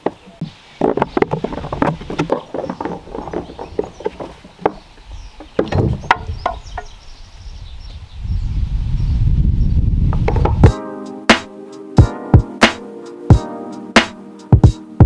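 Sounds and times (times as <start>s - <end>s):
wooden slab scraping on log: 0.0s - 6.6s.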